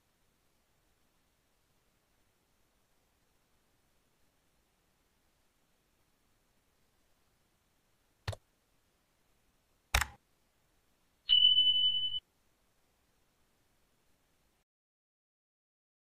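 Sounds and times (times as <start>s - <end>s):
mouse clicks: 8.2s - 8.4s, 9.9s - 10.2s.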